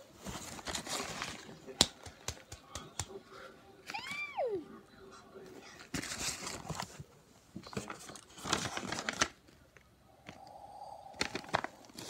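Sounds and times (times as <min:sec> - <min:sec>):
paper rustling and crinkling: 0:00.0 - 0:02.4, 0:05.8 - 0:09.6, 0:11.2 - 0:12.0.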